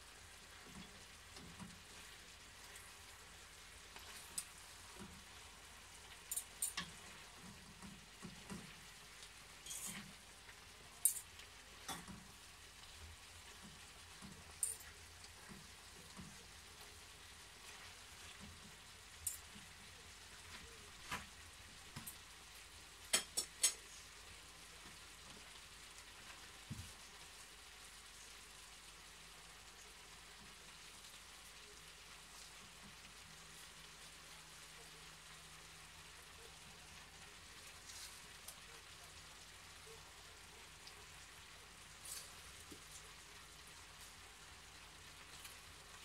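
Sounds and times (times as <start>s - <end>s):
food sizzling in a pan: 0.0s - 46.0s
metal fork clinking on pan: 6.3s - 7.0s.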